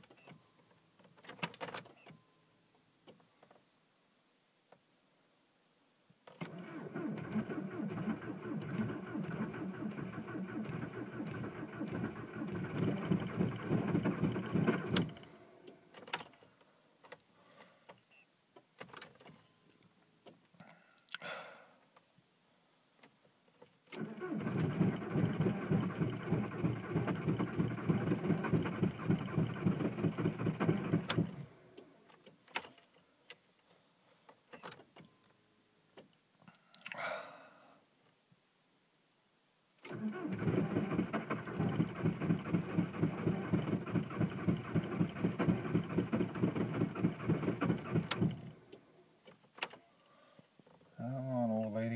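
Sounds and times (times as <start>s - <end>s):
starter cranking diesel engine: 6.5s - 15.3s, 24.0s - 31.5s, 39.9s - 48.6s.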